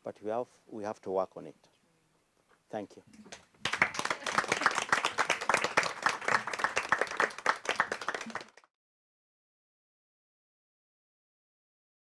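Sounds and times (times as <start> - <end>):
audience applauding: 3.6 - 8.7.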